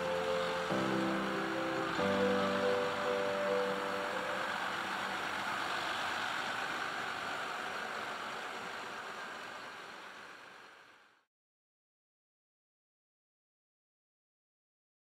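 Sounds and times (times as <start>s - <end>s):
background music: 0.0s - 5.6s
tractor diesel engine running: 0.0s - 11.2s.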